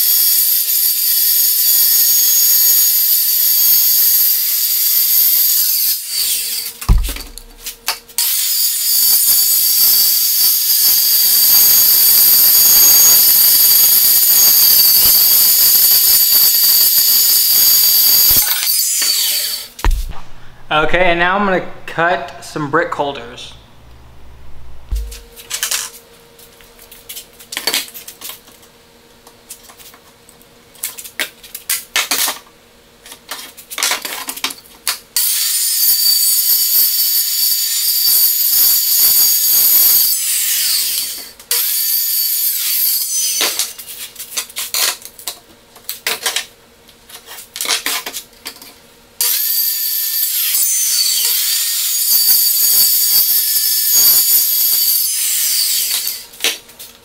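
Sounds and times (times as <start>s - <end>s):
circular saw cutting plywood: 1.5s - 19.8s, 49.3s - 56.2s
saw blade whining down: 8.2s - 19.8s, 49.3s - 56.3s.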